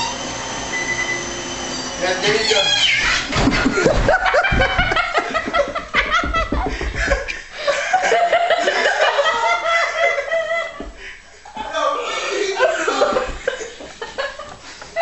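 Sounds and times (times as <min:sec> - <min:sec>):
low thumps of man falling: 0:03.3 - 0:05.1
hard sustained laughter: 0:03.3 - 0:11.2, 0:11.8 - 0:15.0.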